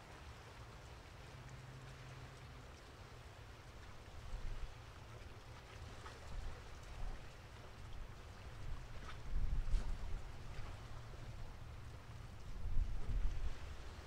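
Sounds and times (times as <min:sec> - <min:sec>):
low steady rumble: 0:00.0 - 0:14.0
wind buffeting microphone: 0:06.2 - 0:14.0.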